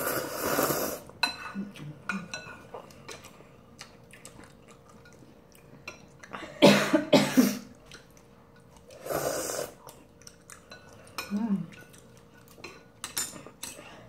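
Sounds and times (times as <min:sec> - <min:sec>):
woman coughing: 0:06.4 - 0:07.7.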